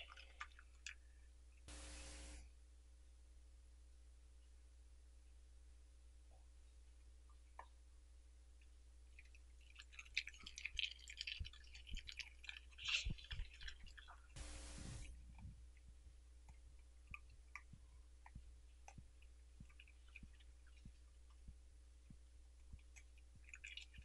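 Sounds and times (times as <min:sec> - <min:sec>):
short hiss: 0:01.7 - 0:02.4, 0:14.4 - 0:15.1
small chewing clicks: 0:08.6 - 0:24.0
dog crunching cabbage leaves: 0:09.7 - 0:15.1.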